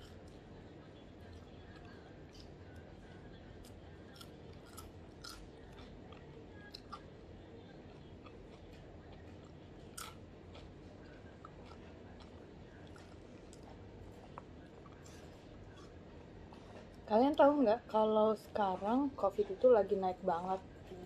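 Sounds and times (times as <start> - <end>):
steady low hum: 0.0 - 21.0
person chewing crunchy noodles: 3.6 - 7.1, 7.9 - 16.0.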